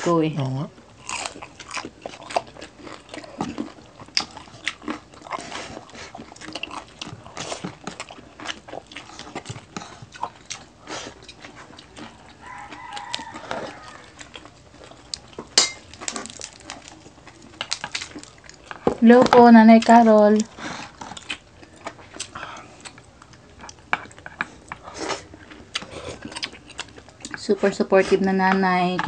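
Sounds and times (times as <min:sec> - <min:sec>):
chewing and crunching: 0:00.5 - 0:29.0.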